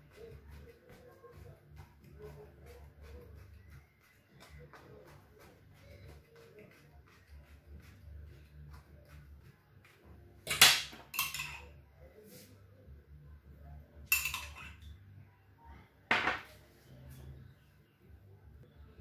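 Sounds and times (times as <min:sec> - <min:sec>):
metal spoon clinking ceramic mug: 0:10.5 - 0:11.7, 0:14.1 - 0:14.8.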